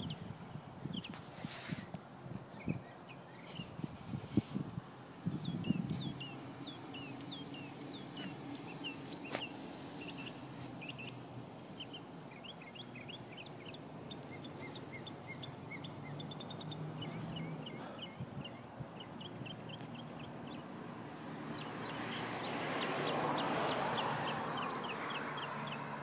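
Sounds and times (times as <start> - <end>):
bird chirping and trilling: 11.8 - 20.6.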